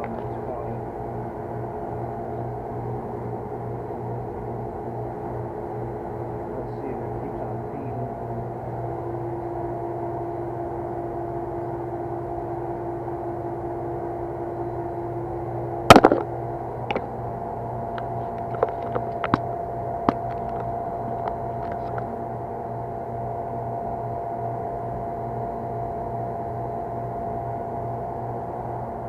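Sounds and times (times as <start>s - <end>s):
mechanical hum: 0.0s - 29.0s
loud sharp knock: 15.9s - 16.3s.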